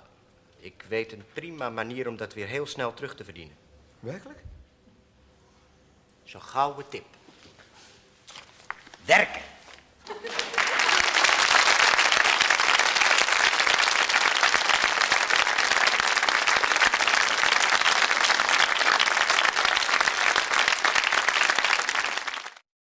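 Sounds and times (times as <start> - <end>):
audience applauding: 10.1 - 22.6.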